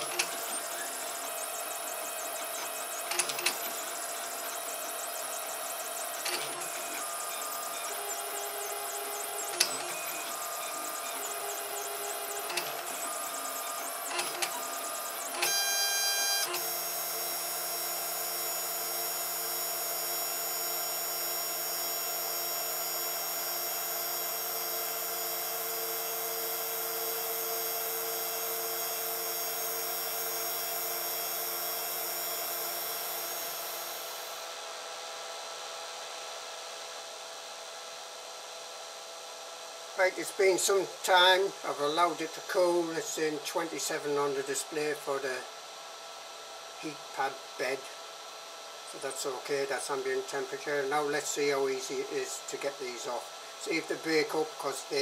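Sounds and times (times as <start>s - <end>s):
printer stepper motors whining: 0.0s - 34.6s
printer clicks: 2.4s - 3.9s, 11.1s - 13.1s, 14.1s - 15.6s.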